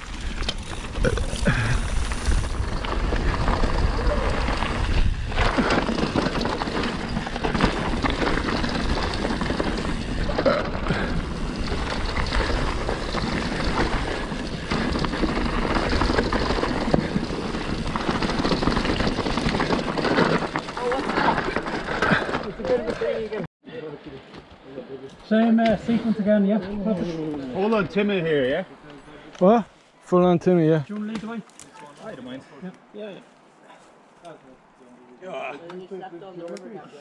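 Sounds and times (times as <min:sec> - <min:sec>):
wind rumble on microphone: 0:00.0 - 0:20.1
bike rattling over bumps: 0:00.0 - 0:23.2
bike tyres rolling on dirt: 0:00.0 - 0:23.4.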